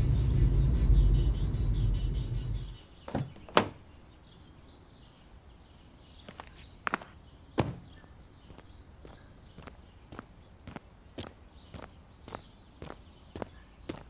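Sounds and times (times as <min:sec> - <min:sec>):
birds chirping: 0:00.0 - 0:14.0
footsteps on concrete: 0:06.3 - 0:14.0.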